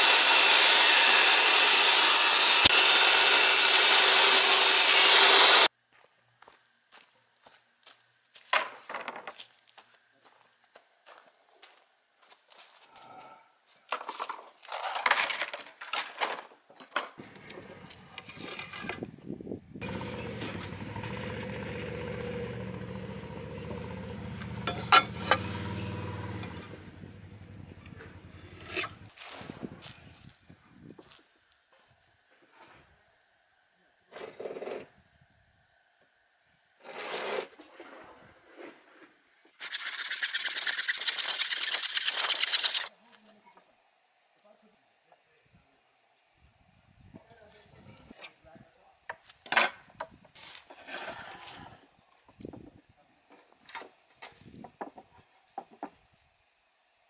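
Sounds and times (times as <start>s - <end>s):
handsaw cutting wood: 0.0s - 5.7s, 39.6s - 42.9s.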